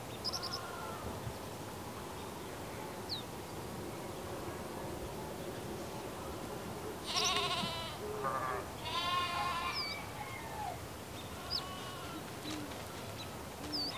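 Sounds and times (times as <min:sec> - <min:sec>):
animal bleating: 0:07.0 - 0:10.0, 0:11.3 - 0:12.3.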